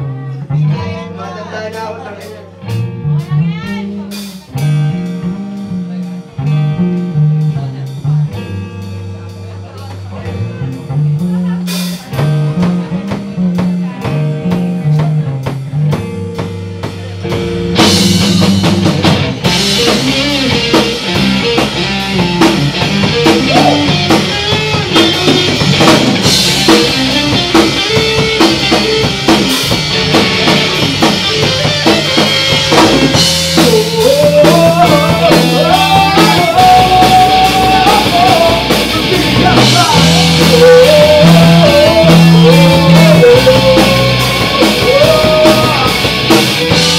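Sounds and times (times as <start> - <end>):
man singing: 0.0 - 4.7, 23.1 - 25.6, 33.1 - 46.9
electric guitar: 0.0 - 46.9
drum kit with cymbals: 1.2 - 46.9.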